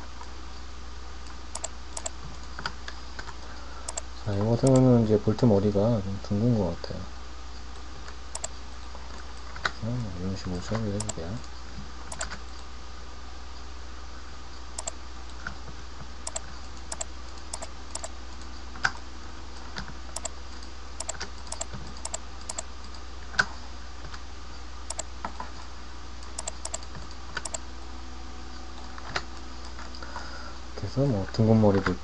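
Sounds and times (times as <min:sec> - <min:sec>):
steady low hum: 0:00.0 - 0:32.0
keyboard keys clicking: 0:01.6 - 0:02.5, 0:11.0 - 0:11.2, 0:12.1 - 0:12.4, 0:16.3 - 0:18.5, 0:21.0 - 0:22.7, 0:26.4 - 0:27.6.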